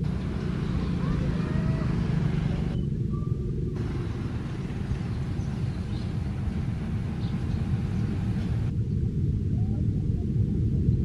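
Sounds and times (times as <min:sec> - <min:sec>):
locomotive diesel engine droning: 0:00.0 - 0:08.7.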